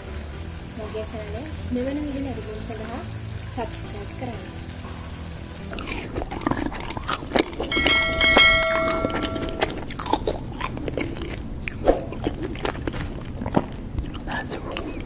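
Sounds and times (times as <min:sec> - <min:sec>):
bell-like chime: 0:07.7 - 0:09.6.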